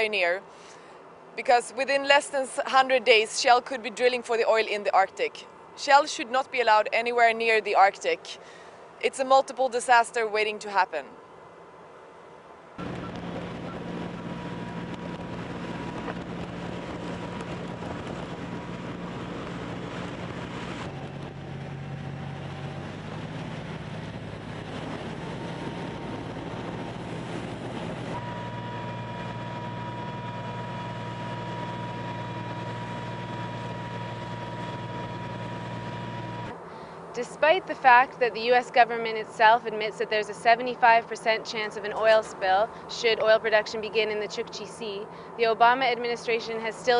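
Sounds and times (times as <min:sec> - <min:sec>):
wind: 0:00.0 - 0:46.9
mechanical engine hum: 0:12.7 - 0:37.1.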